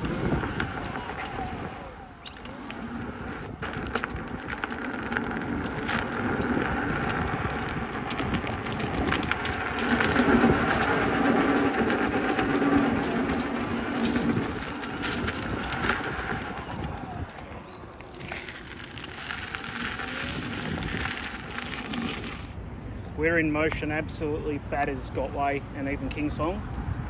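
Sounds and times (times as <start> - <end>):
tyre rumble on path: 0.0 - 22.6
grit crackling under tyre: 0.0 - 26.9.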